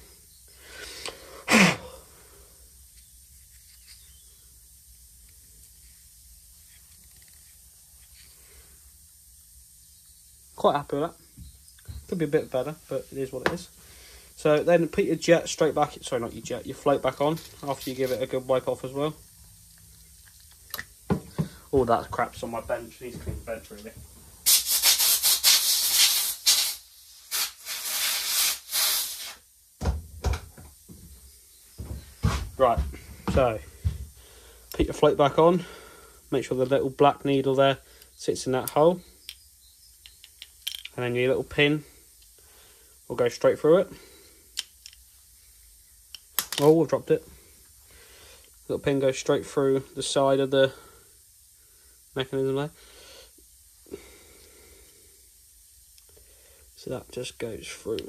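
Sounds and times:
compressed air blow gun hissing: 0.0 - 6.8, 7.5 - 13.0, 13.7 - 14.5, 15.1 - 19.3, 20.9 - 29.5
faint handling sounds: 2.9 - 4.2, 5.2 - 8.8, 15.5 - 24.3
compressed air blast: 24.4 - 29.5.

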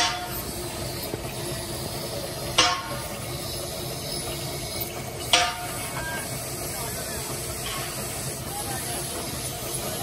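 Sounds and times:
workshop machine noise: 0.0 - 10.0.

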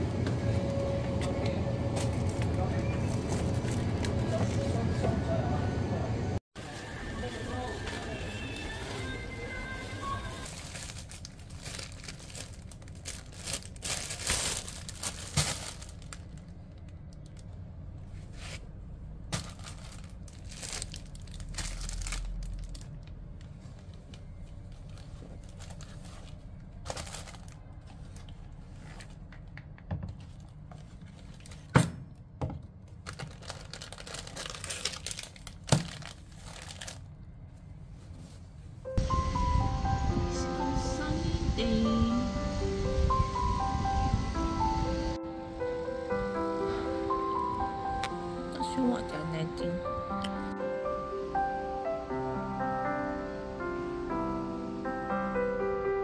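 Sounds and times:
rustling and tearing: 10.4 - 16.5, 33.0 - 37.1.

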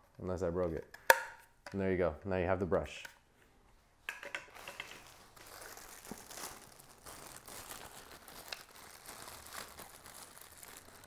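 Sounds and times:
plastic bag crinkling: 4.5 - 11.0.

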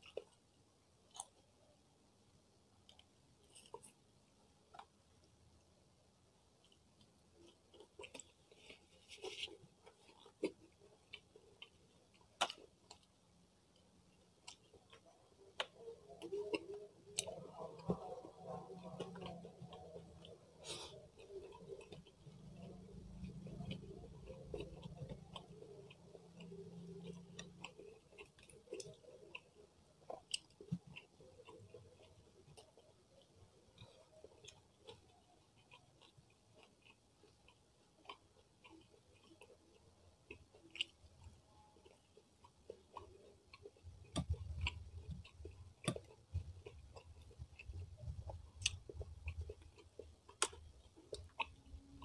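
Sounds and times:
chewing clicks: 14.4 - 52.0.

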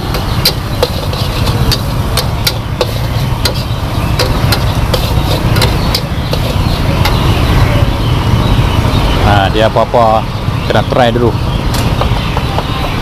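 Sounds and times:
metal spatula clanking on a wok: 0.0 - 7.3
wok burner rumble: 0.0 - 13.0.

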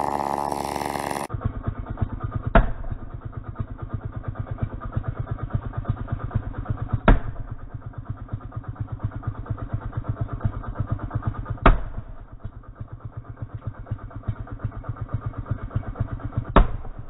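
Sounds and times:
chainsaw engine idling: 0.0 - 17.0
sharp loud knocks: 2.4 - 3.0, 6.9 - 7.5, 11.5 - 12.1, 16.4 - 17.0.

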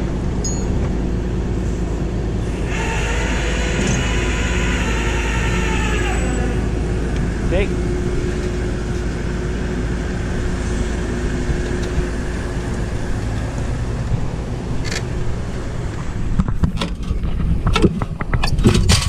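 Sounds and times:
engine running: 0.0 - 19.0
sharp knocks and clatter: 16.3 - 19.0.

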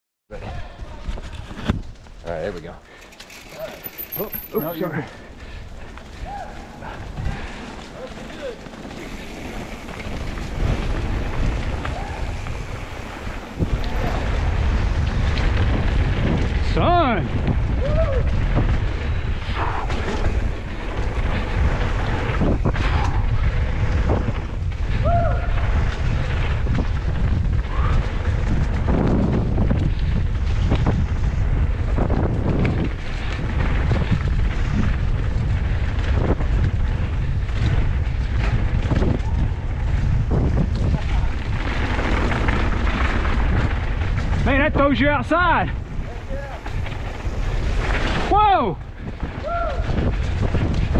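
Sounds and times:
tyre noise on dirt: 0.3 - 50.9
wind buffeting microphone: 0.3 - 50.9
bike clicks and rattles: 0.9 - 50.9
bike clicks and knocks: 1.2 - 4.9.

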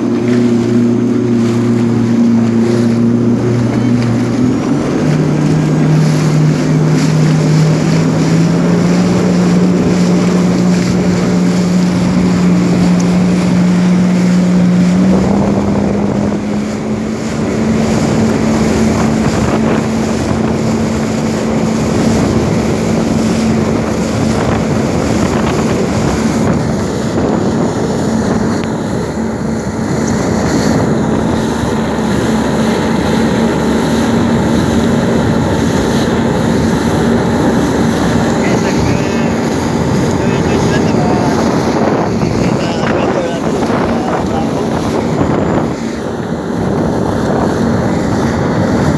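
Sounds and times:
jet ski engine running: 0.0 - 48.9
rushing water: 0.0 - 48.9
wind buffeting microphone: 0.0 - 48.9.

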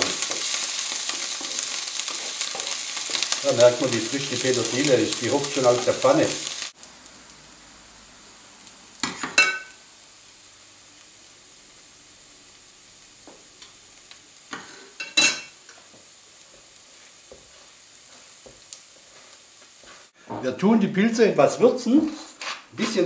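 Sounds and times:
utensils clinking against pan: 0.0 - 4.0, 9.0 - 9.8, 14.5 - 15.6
rice simmering hiss: 0.0 - 20.2.

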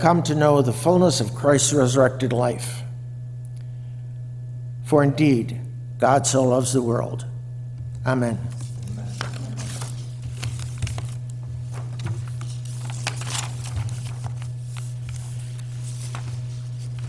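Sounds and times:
low room hum: 0.0 - 17.0
faint clicks and rustles: 8.5 - 17.0.

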